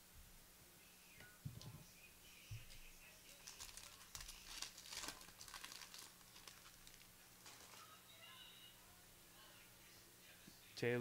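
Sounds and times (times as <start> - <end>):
foil wrapper tearing and crinkling: 3.3 - 7.9.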